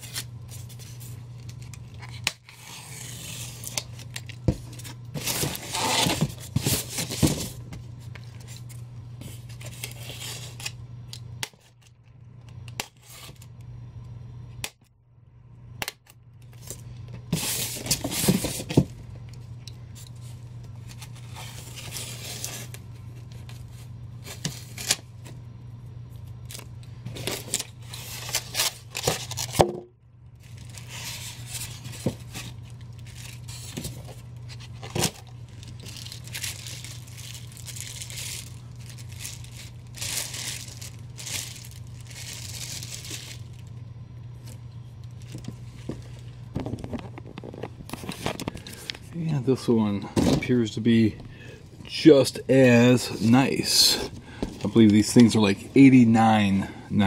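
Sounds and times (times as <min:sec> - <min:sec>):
steady low hum: 0:00.0 - 0:57.0
styrofoam scraping and rubbing: 0:05.2 - 0:07.5
plastic bag rustling: 0:30.4 - 0:43.7.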